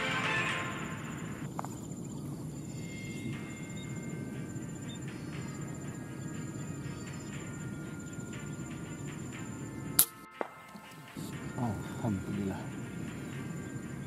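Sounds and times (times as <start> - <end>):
insects trilling: 0.0 - 14.0
low background rumble: 0.6 - 10.0, 11.0 - 14.0.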